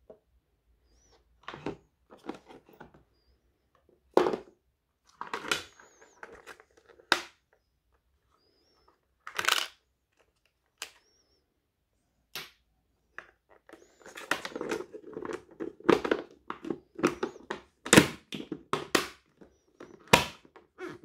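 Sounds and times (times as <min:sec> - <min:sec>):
plastic squeaks: 0:05.2 - 0:07.7, 0:13.2 - 0:21.0.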